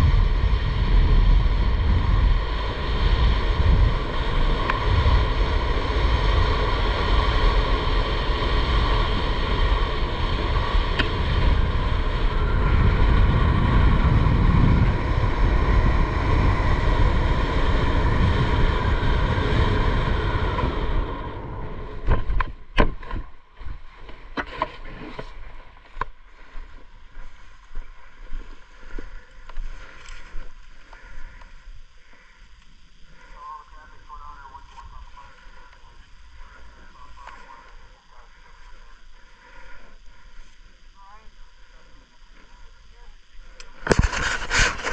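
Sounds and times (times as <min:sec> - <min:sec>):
wind rushing over microphone: 0:00.0 - 0:32.3, 0:43.2 - 0:44.9.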